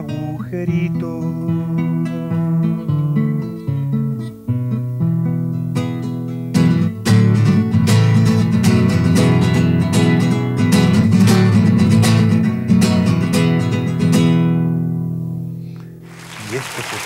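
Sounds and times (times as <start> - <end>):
classical guitar playing: 0.0 - 16.0.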